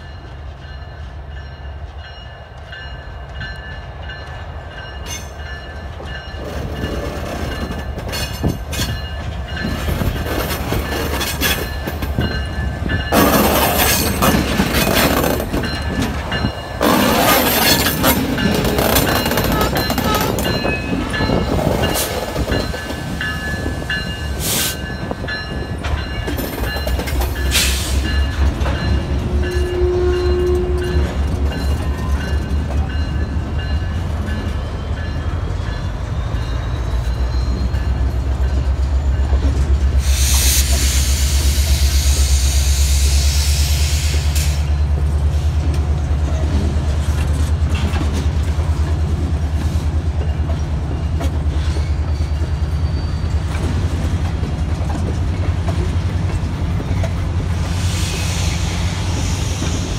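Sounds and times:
freight train rumbling: 0.0s - 59.9s
train hiss: 23.8s - 24.9s, 27.4s - 28.3s, 39.9s - 45.6s, 57.5s - 59.9s.

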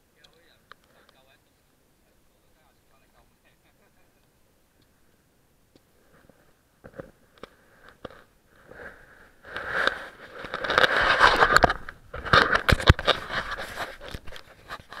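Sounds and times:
knocks and scrapes on camera: 6.1s - 15.0s
camera handling rustling: 9.6s - 15.0s.

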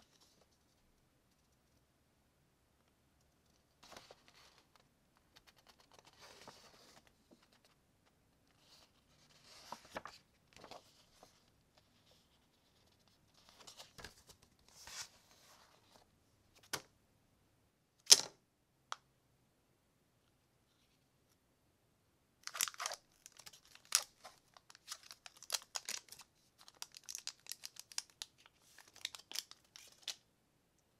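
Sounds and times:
paper rustling: 3.5s - 7.8s, 8.5s - 16.0s
foil packet crinkle: 22.4s - 30.2s.

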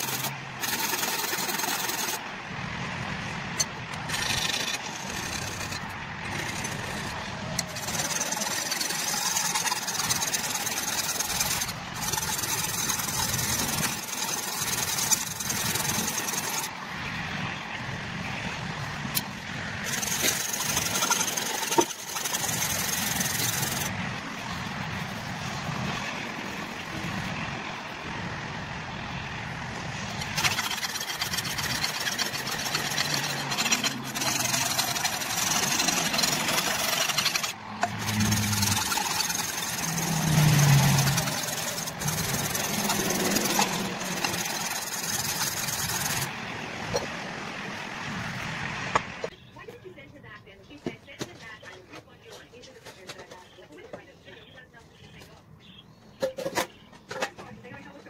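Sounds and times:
scratchy rubbing on metal: 0.0s - 2.2s, 3.9s - 16.7s, 19.8s - 23.9s, 30.2s - 46.3s.

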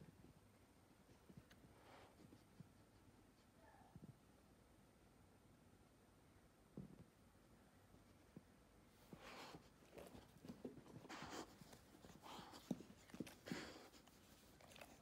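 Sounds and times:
faint breathy rustles: 8.1s - 15.0s.

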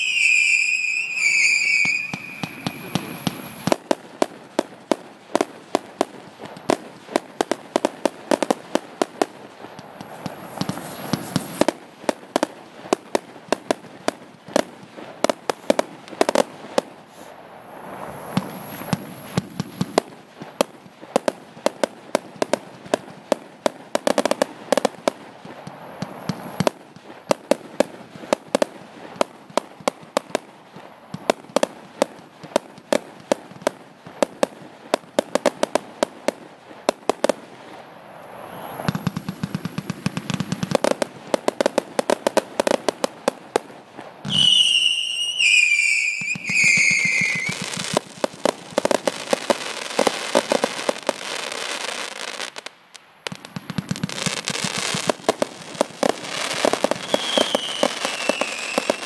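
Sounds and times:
fireworks shots and bangs: 38.7s - 51.1s.

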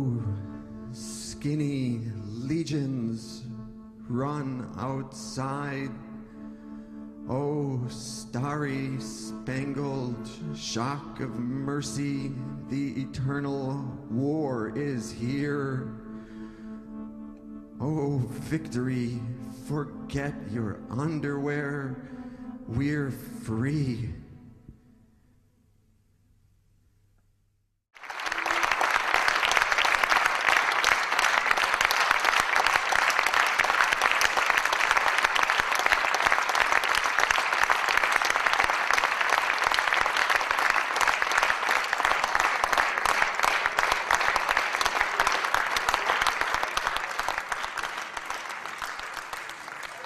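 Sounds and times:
audience applauding: 28.0s - 50.0s.

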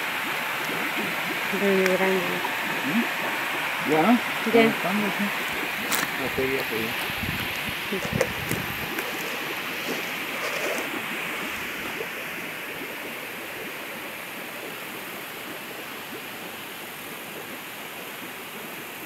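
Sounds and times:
water rushing: 0.0s - 19.0s
dip net splashing and rustling: 2.4s - 12.3s.

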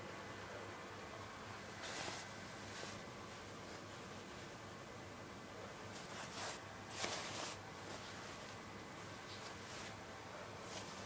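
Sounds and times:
fabric rustling: 1.8s - 3.8s, 5.9s - 10.0s, 10.6s - 11.0s.

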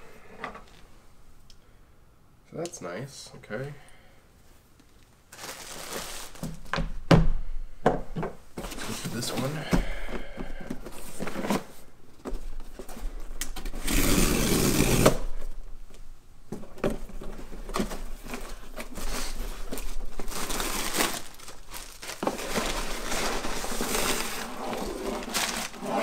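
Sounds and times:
packaging crinkling and tearing: 5.3s - 6.7s, 17.8s - 26.0s.

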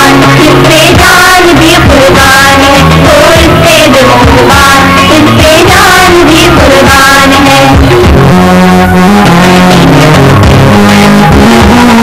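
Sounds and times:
song with singing voice and beat: 0.0s - 12.0s.

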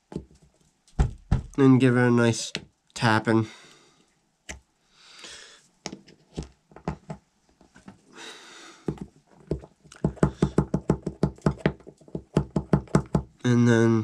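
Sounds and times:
soft breathy hisses: 4.8s - 5.8s.

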